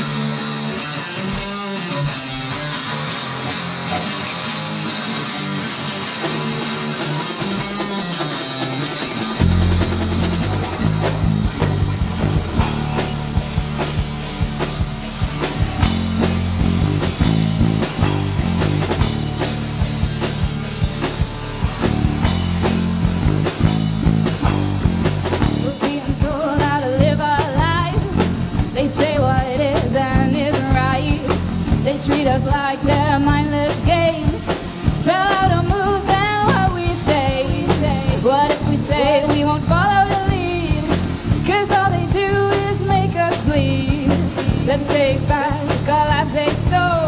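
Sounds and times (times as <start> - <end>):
bass guitar: 0.0 - 47.0
drums: 0.0 - 47.0
electric guitar: 0.0 - 47.0
woman singing: 25.6 - 47.0.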